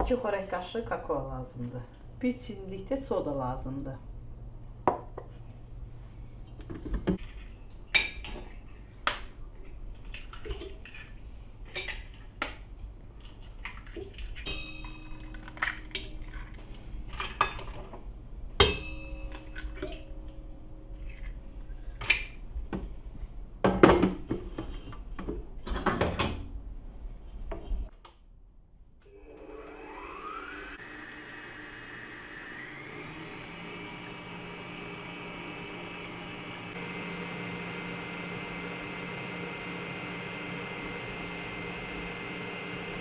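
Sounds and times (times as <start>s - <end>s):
stand mixer whining: 29.1s - 43.0s.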